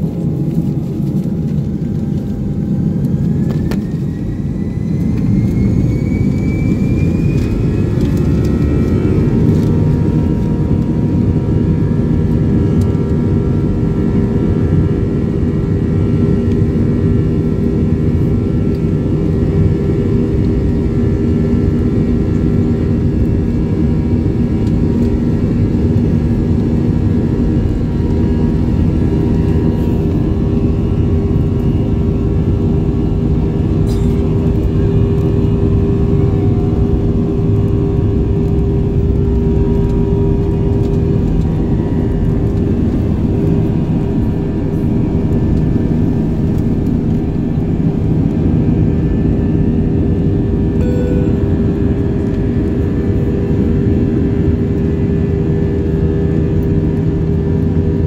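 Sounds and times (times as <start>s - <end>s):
jet engines droning: 0.0s - 58.0s.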